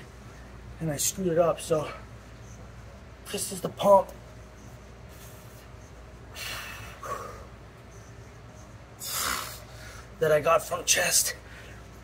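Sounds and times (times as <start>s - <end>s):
man breathing heavily with hiss: 4.9s - 10.2s, 11.4s - 12.0s.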